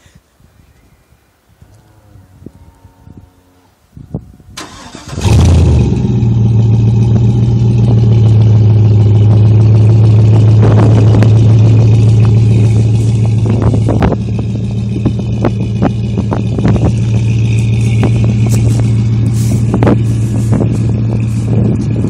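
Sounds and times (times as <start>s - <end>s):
engine starting and idling: 4.6s - 9.3s.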